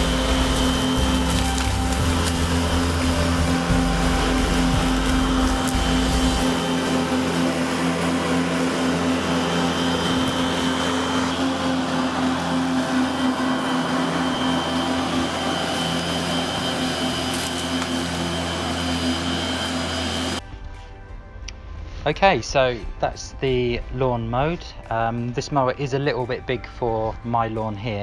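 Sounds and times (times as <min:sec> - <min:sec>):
electric lawn mower running: 0:00.0 - 0:20.4.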